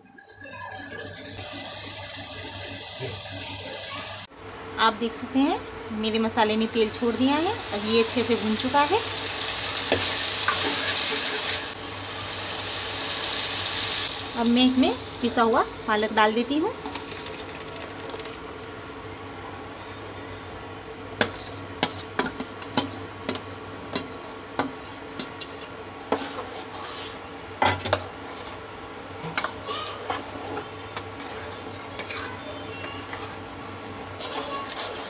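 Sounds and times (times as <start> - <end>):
ladle scraping steel bowl: 29.8 - 33.5, 34.1 - 35.0.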